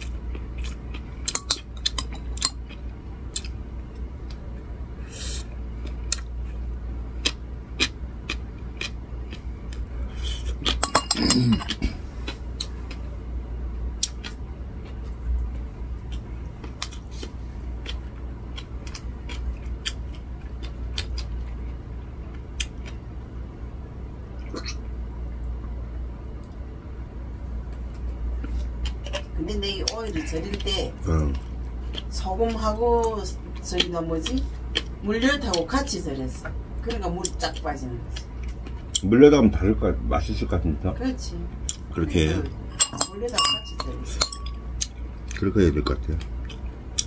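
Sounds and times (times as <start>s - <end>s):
low steady hum: 0.0s - 47.0s
chopsticks clattering: 10.7s - 11.8s, 42.7s - 44.6s.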